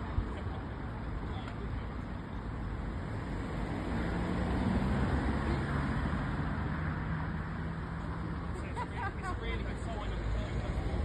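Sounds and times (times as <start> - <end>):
car driving past: 3.3 - 8.5.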